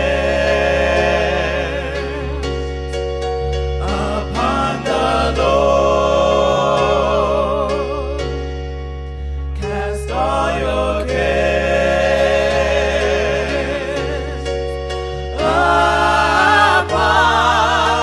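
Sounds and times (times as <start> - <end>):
electronic keyboard: 0.0 - 18.0
gospel singing: 0.0 - 18.0.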